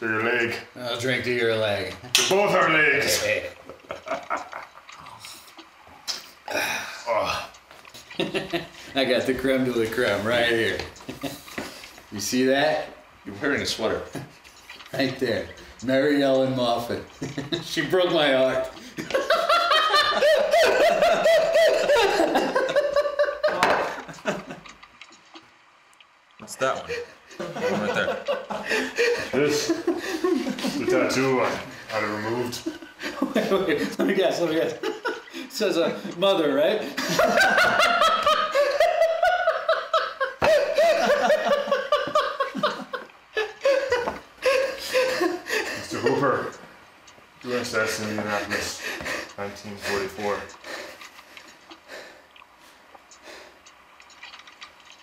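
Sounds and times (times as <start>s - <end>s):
men laughing: 3.0s - 5.0s, 6.5s - 11.9s, 16.8s - 24.9s, 26.9s - 46.6s, 47.5s - 52.2s.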